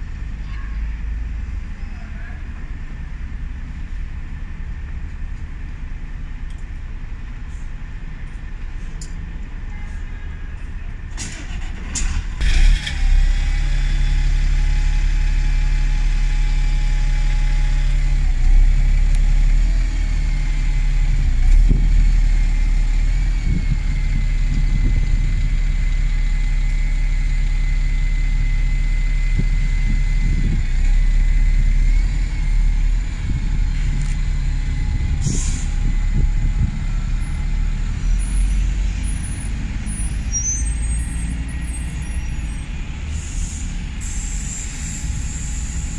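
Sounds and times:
bus engines idling: 0:00.0 - 0:45.9
high engine whine: 0:00.0 - 0:45.9
air brake hiss: 0:35.2 - 0:35.8, 0:43.1 - 0:45.9.

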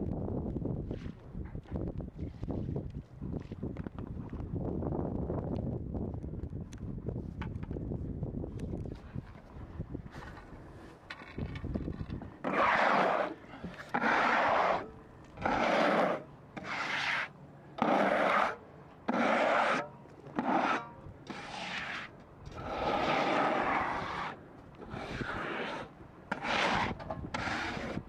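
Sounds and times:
rubbing strokes on wood: 0:12.4 - 0:19.8.

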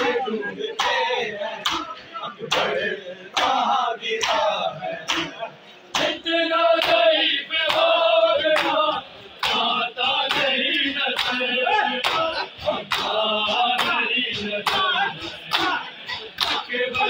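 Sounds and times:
men chanting in chorus: 0:00.0 - 0:17.0
hands slapping bare chests: 0:04.2 - 0:04.5, 0:05.1 - 0:06.2, 0:11.1 - 0:11.4, 0:12.0 - 0:12.3, 0:12.9 - 0:13.2, 0:15.5 - 0:15.8, 0:16.4 - 0:16.7.

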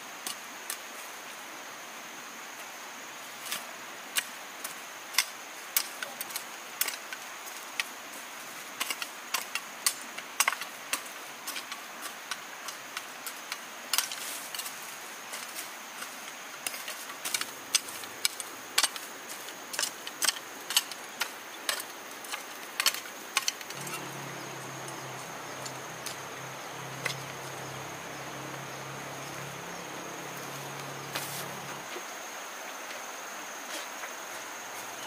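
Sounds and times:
hand hoe scraping stony soil: 0:13.9 - 0:31.9
high insect drone: 0:23.1 - 0:35.0.

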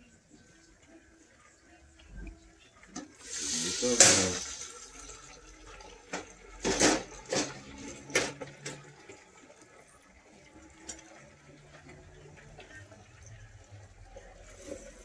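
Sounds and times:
hot oil hissing and boiling: 0:00.6 - 0:15.0.

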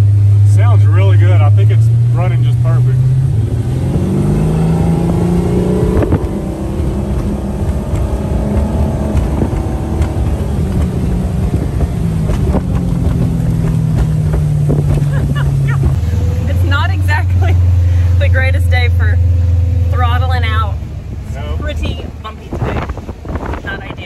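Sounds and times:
boat engine running: 0:00.0 - 0:24.0
man talking: 0:00.4 - 0:03.1
rushing noise: 0:02.8 - 0:18.2.

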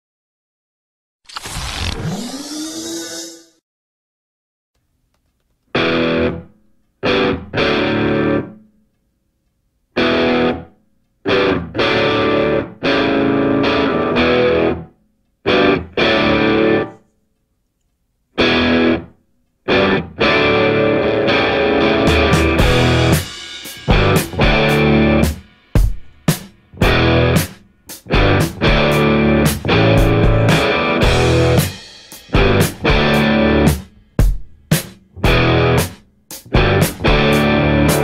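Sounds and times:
distorted electric guitar chords: 0:05.8 - 0:08.6, 0:10.0 - 0:10.7, 0:11.3 - 0:14.9, 0:15.5 - 0:17.0, 0:18.4 - 0:19.1, 0:19.7 - 0:34.4, 0:35.1 - 0:38.0.

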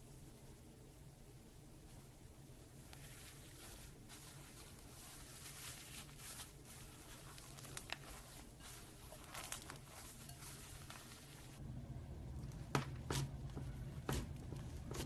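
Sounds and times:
foam beads rustling in slime: 0:02.8 - 0:11.6
low hum: 0:10.3 - 0:15.0.

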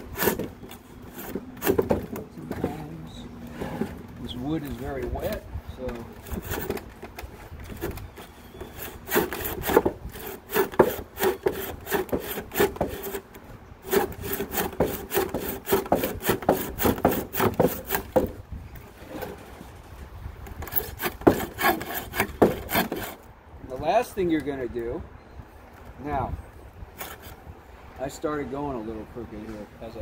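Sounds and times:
handsaw cutting wood: 0:00.0 - 0:02.2, 0:06.2 - 0:06.8, 0:07.7 - 0:13.2, 0:13.8 - 0:18.3, 0:20.6 - 0:23.2, 0:27.0 - 0:27.4.

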